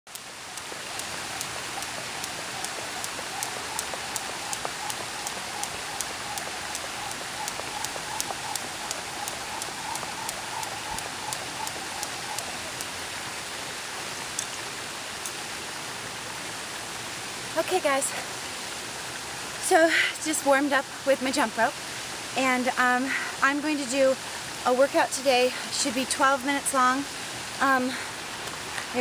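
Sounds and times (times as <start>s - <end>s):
jump rope ticking on concrete: 0.1s - 12.9s
small waterfall rushing: 0.1s - 29.0s.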